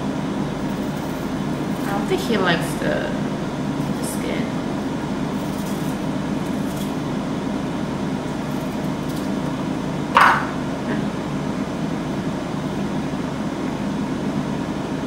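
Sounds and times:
air fryer fan hum: 0.0 - 15.0
knife set down on wooden board: 10.2 - 10.5.

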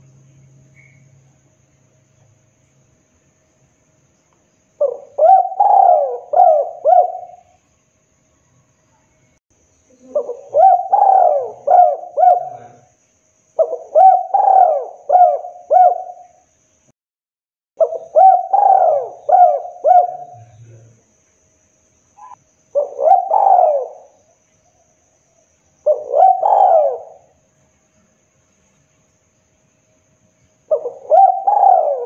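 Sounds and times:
dove cooing: 4.8 - 7.6, 9.9 - 12.9, 13.6 - 16.4, 17.8 - 20.8, 22.2 - 24.2, 25.8 - 27.4, 30.7 - 32.0.

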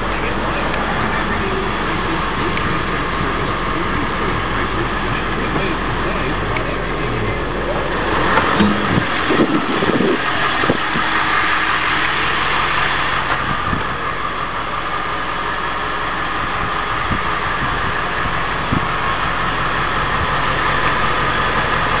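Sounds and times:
ambulance engine idling: 0.0 - 22.0.

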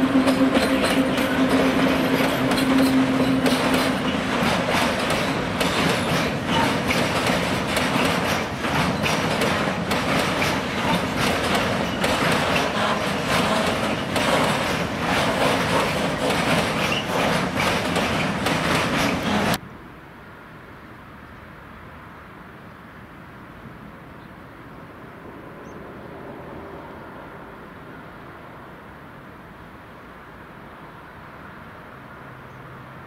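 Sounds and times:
freight train rumbling past: 0.0 - 19.6, 24.7 - 30.5
wheels clacking over rail joints: 0.0 - 19.6.

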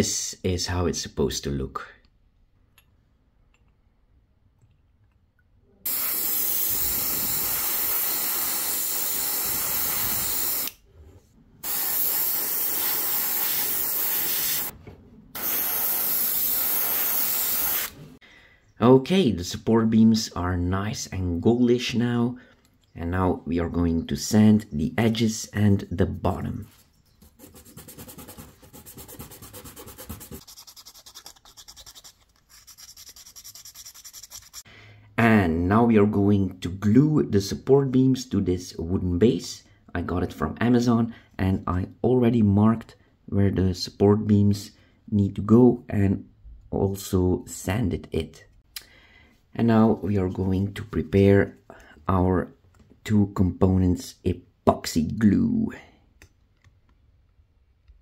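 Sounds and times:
airbrush spraying hiss: 5.9 - 10.7, 11.6 - 14.7, 15.4 - 18.2
plastic part scratching on sandpaper: 27.2 - 34.6.

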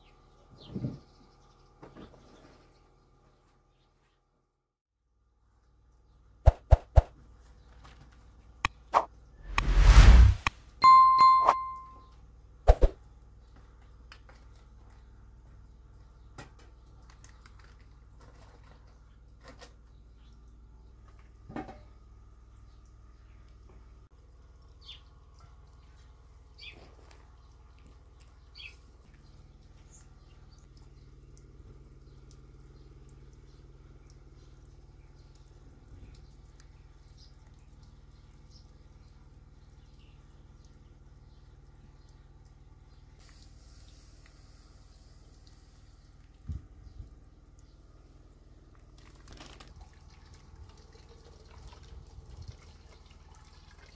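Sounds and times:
bell-like ding: 10.8 - 12.1
faint small birds chirping: 11.6 - 49.6.

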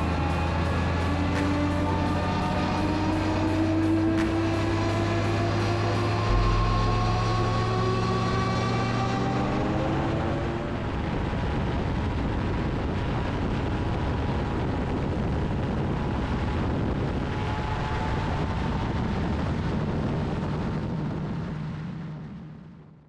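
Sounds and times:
gyroplane engines droning: 0.0 - 23.0
wind noise on microphone: 0.0 - 23.0.

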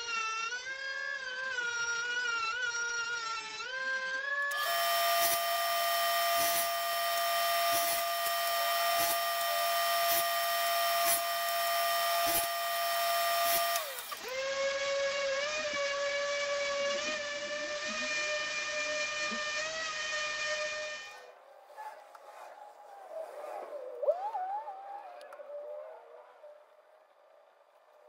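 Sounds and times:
orbital sander whining: 0.0 - 21.3
table saw whining: 0.0 - 21.4.

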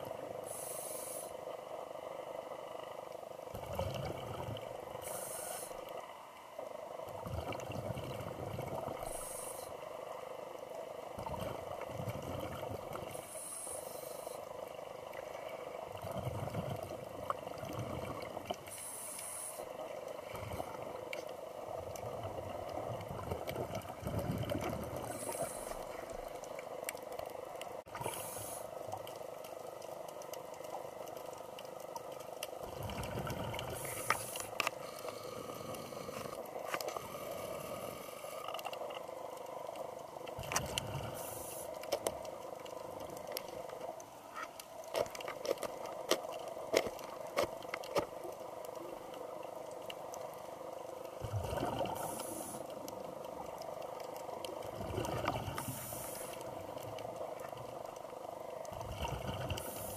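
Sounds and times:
regulator inhalation hiss: 0.4 - 1.5, 5.0 - 5.9, 9.0 - 9.8, 13.1 - 14.5, 18.7 - 19.8, 25.1 - 26.0, 28.0 - 28.8, 33.7 - 36.4, 41.0 - 41.8, 51.9 - 52.9, 55.6 - 56.4, 59.6 - 59.9
exhaled bubbles rumbling: 3.5 - 4.8, 7.0 - 9.3, 11.1 - 13.2, 15.8 - 18.7, 20.2 - 26.5, 32.6 - 34.1, 51.1 - 57.9, 58.7 - 59.9.

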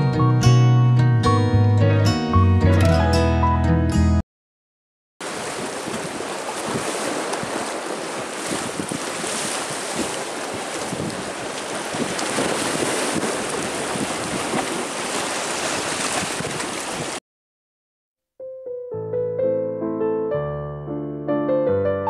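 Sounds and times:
water splashing against stone wall: 5.2 - 17.2
wind rushing over microphone: 5.3 - 14.9, 15.7 - 17.2.

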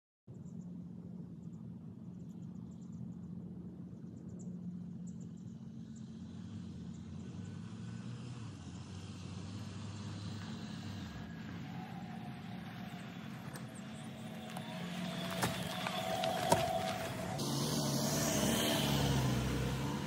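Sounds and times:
steady low hum: 0.3 - 8.9
vehicle driving on dirt trail: 4.3 - 20.0.

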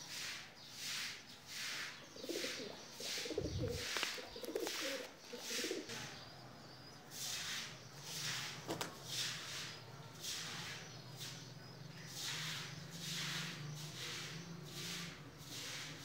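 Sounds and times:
pigeons cooing: 1.6 - 11.5.

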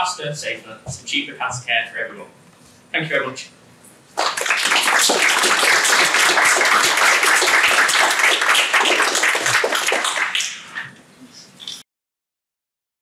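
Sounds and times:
audience applauding: 4.2 - 10.8.

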